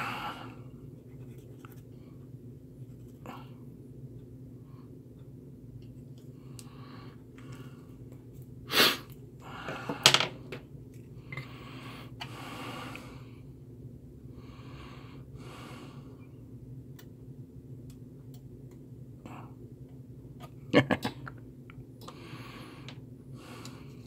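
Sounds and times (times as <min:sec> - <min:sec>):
heavy breathing: 0:00.0 - 0:00.7, 0:08.7 - 0:10.1, 0:22.1 - 0:24.0
low steady hum: 0:00.0 - 0:24.0.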